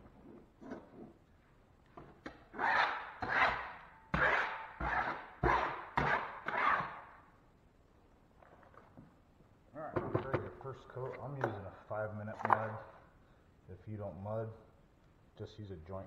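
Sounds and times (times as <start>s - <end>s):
putty knife scraping drywall: 0.0s - 1.2s, 2.3s - 7.0s.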